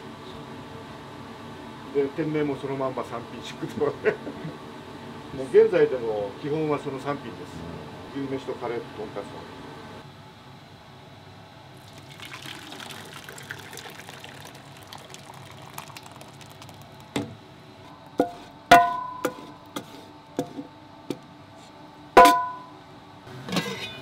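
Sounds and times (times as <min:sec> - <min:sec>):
running water: 0:11.8 - 0:17.2.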